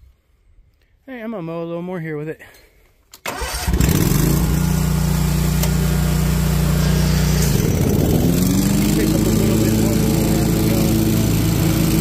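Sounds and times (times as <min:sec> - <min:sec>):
mower engine running: 0:03.3 - 0:12.0
leaf blower: 0:03.7 - 0:12.0.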